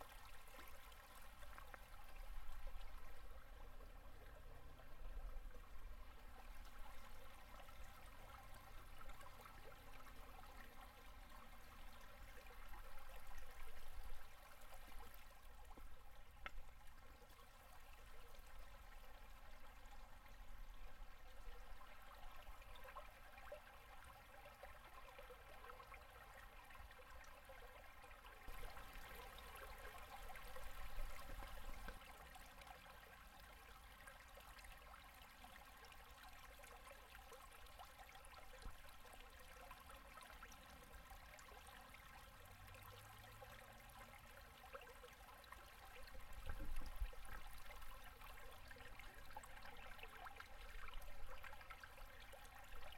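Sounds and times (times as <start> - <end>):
river water gurgling over ice: 0.0 - 52.9.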